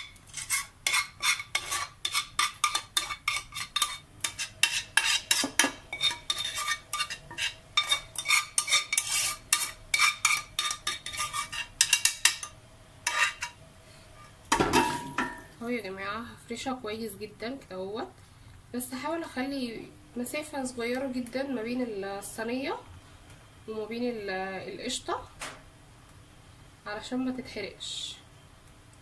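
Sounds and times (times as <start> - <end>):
metal spoon scraping and clinking: 0.0 - 13.6.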